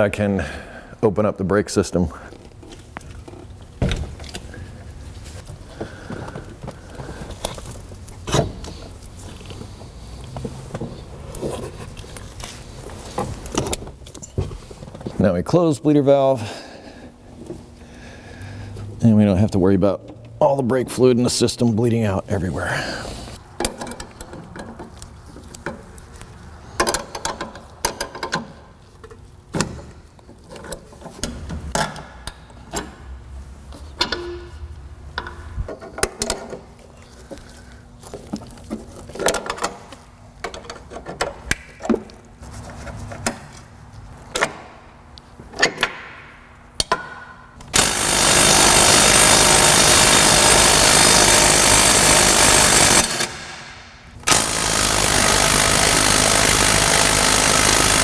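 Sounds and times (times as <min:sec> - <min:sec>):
pneumatic impact wrench running: 0:47.7 - 0:58.0.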